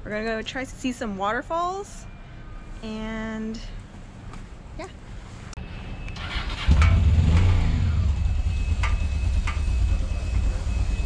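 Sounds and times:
motorcycle engine starting and idling: 0:05.6 - 0:11.0.

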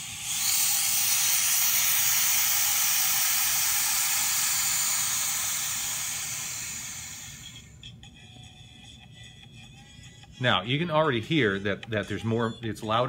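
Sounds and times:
air hissing into vacuum jar: 0:00.0 - 0:07.7.

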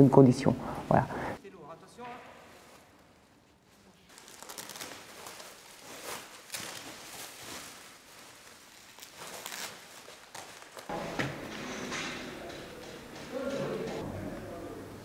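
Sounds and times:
bubble wrap crinkling: 0:01.9 - 0:10.9.

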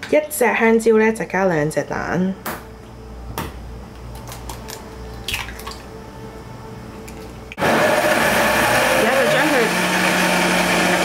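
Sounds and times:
blender whirring: 0:07.6 - 0:11.0.

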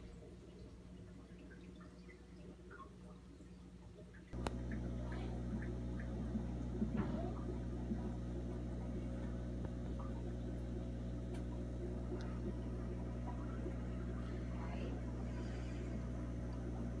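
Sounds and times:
aquarium equipment humming: 0:00.0 - 0:17.0
faint clicks: 0:04.1 - 0:10.3.

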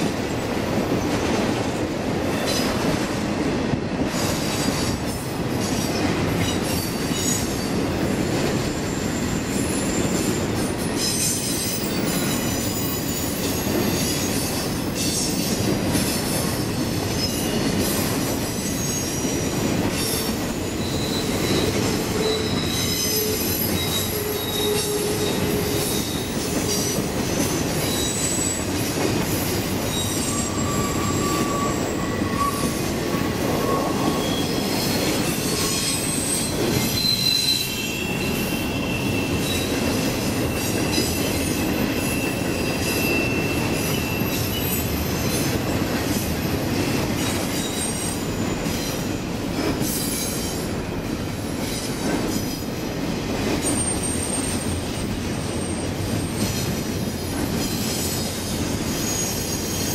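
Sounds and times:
train wheels rumbling on rail: 0:00.0 - 0:59.9
high-pitched wheel squeal: 0:20.1 - 0:27.1, 0:27.9 - 0:28.7, 0:29.9 - 0:45.4, 0:59.0 - 0:59.9.

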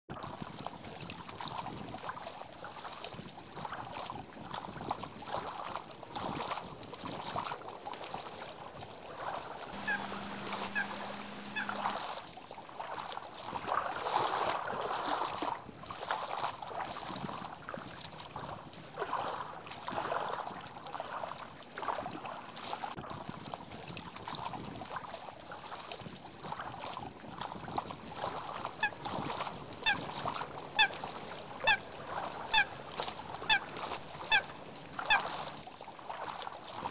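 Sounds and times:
high-pitched calls: 0:09.8 - 0:12.0, 0:28.6 - 0:35.4
low steady hum: 0:09.8 - 0:12.1, 0:28.4 - 0:35.5
wild geese honking: 0:09.8 - 0:12.1, 0:28.4 - 0:35.5.

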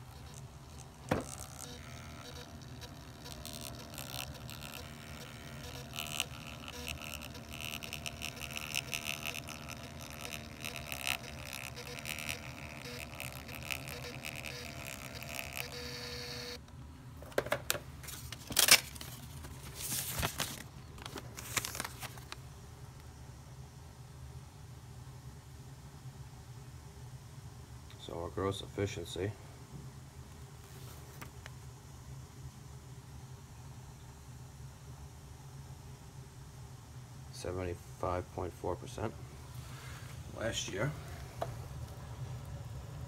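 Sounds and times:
receipt printer whirring: 0:00.0 - 0:16.6
paper strip tearing and rustling: 0:18.0 - 0:22.4.

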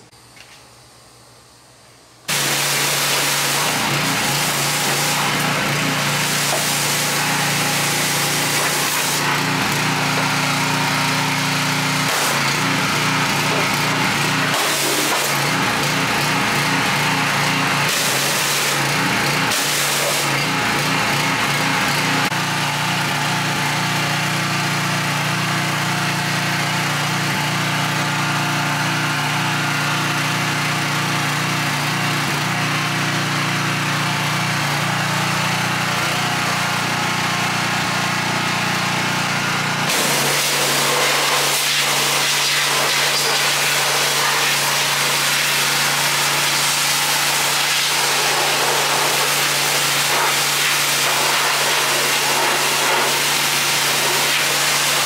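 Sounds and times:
high-pressure spray hissing: 0:02.3 - 0:09.3
pressure washer engine running: 0:02.3 - 0:55.0.

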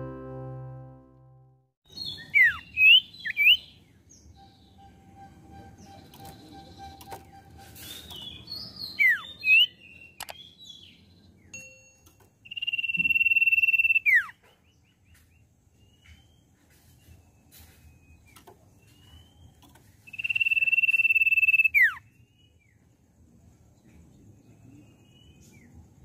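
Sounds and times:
bird whistling calls: 0:02.0 - 0:03.7, 0:04.4 - 0:09.7, 0:12.5 - 0:14.4, 0:20.1 - 0:22.0.

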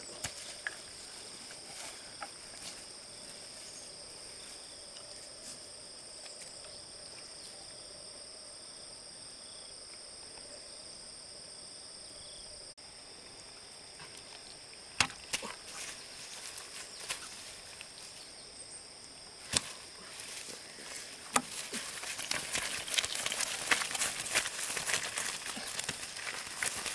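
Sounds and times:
insects trilling: 0:00.0 - 0:26.9.

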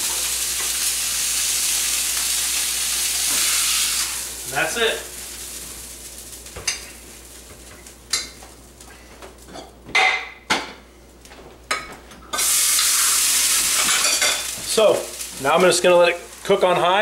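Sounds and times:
loud steady hiss: 0:00.0 - 0:07.2, 0:12.4 - 0:17.0.

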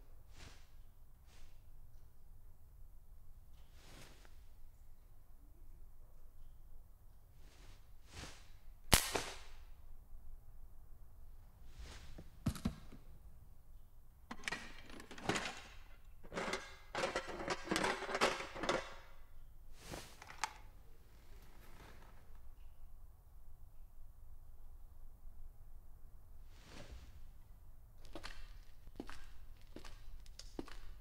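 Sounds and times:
machine clicks and clunks: 0:14.3 - 0:19.1
clattering rattles: 0:14.3 - 0:19.2.

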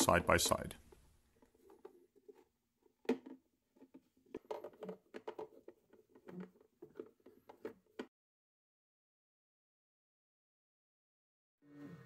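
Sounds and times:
plastic clicks and scrapes: 0:00.8 - 0:08.1.

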